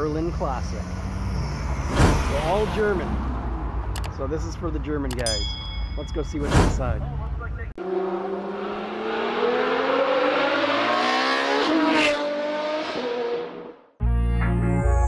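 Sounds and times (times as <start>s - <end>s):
car engine revving: 0.0s - 4.1s, 7.8s - 13.9s
whoosh: 0.8s - 3.4s, 6.4s - 7.0s.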